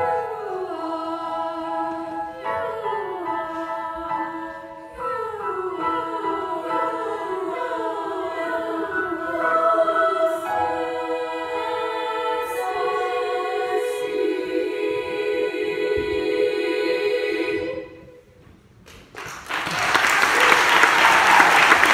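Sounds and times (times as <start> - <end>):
treble choir singing in harmony: 0.0 - 18.6.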